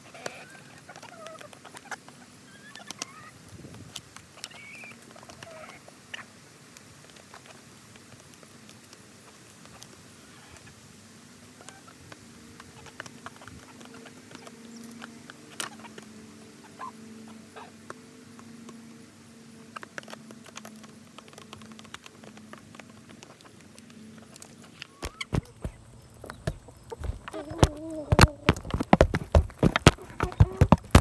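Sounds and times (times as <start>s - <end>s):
beaks tapping on foil: 19.6s - 31.0s.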